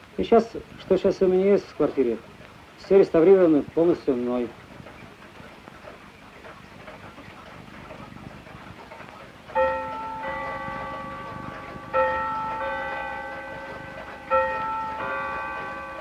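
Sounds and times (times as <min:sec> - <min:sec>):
clock chiming on bells: 0:09.5 - 0:16.0.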